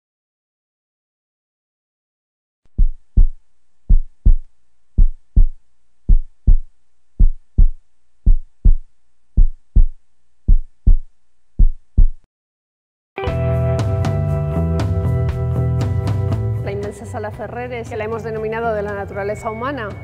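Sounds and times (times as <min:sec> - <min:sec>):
heartbeat thumps: 0:02.7 - 0:12.3.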